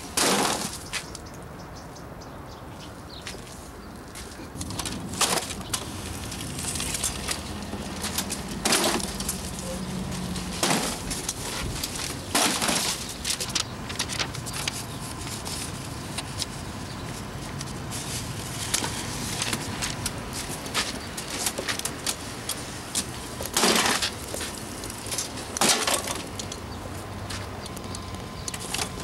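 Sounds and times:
paper rustling: 0:04.3 - 0:26.3
paper crunches: 0:04.6 - 0:16.6.

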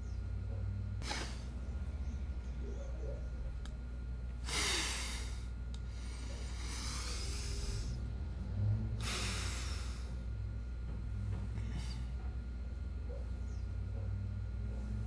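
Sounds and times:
man breathing heavily: 0:01.0 - 0:01.7, 0:04.3 - 0:12.4.

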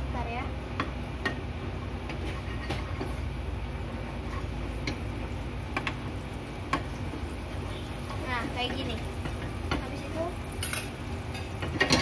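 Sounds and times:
steady low hum: 0:00.0 - 0:12.0
spatula stirring butter in pan: 0:00.8 - 0:12.0
spatula knocking against pan: 0:04.8 - 0:07.2, 0:08.6 - 0:10.0.

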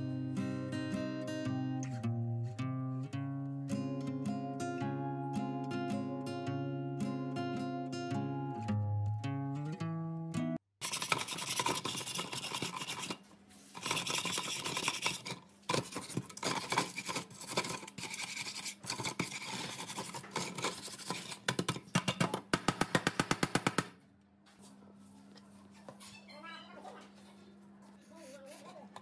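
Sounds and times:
wire brush scrubbing metal: 0:10.8 - 0:21.4.

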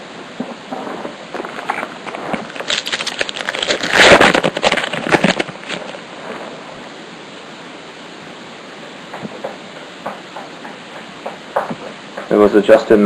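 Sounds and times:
foil wrapper tearing and crinkling: 0:01.4 - 0:06.0.

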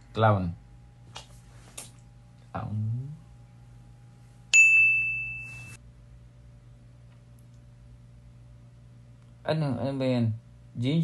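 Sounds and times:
bright electronic ding: 0:04.6 - 0:05.8.

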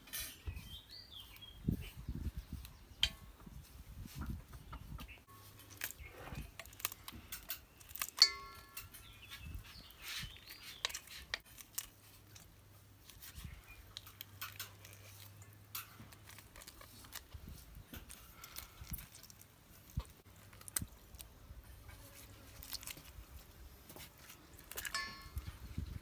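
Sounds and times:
blade clinking on steel bowl: 0:08.2 - 0:09.2, 0:24.8 - 0:25.4.

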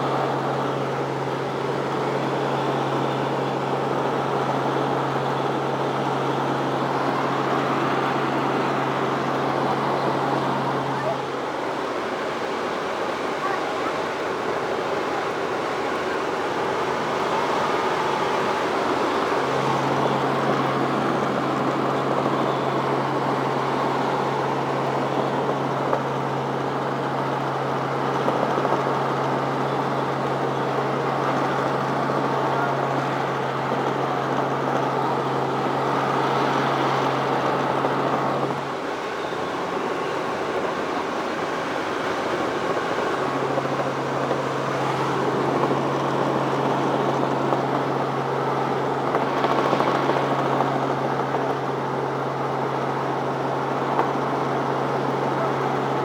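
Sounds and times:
helicopter in flight from cabin: 0:00.0 - 0:56.0.

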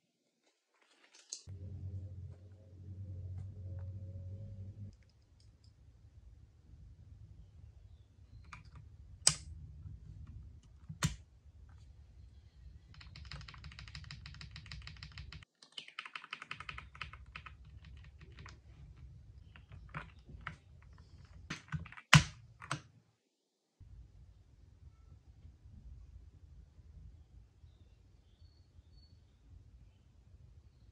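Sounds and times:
mechanical keyboard typing: 0:12.9 - 0:18.6, 0:19.4 - 0:22.9.

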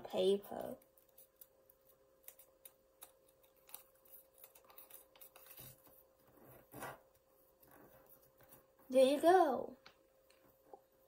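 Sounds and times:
faint steady hum: 0:00.0 - 0:11.0
paper rustling and tapping: 0:00.7 - 0:08.8.

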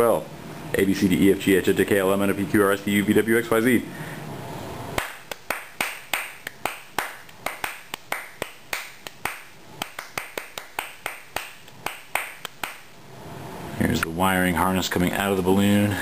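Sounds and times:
sharp hand claps: 0:05.0 - 0:12.9.

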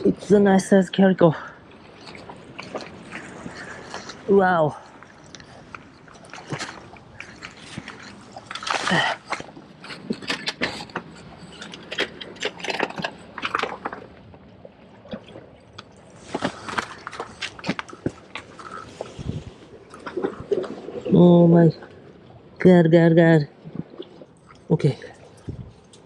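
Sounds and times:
fishing gear clicks and scrapes: 0:02.1 - 0:14.3, 0:15.9 - 0:20.8.

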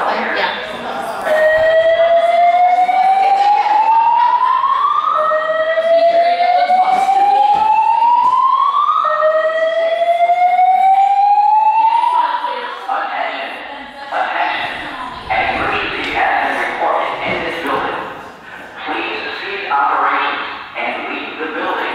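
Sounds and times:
fire alarm whoop tone: 0:01.2 - 0:12.7.

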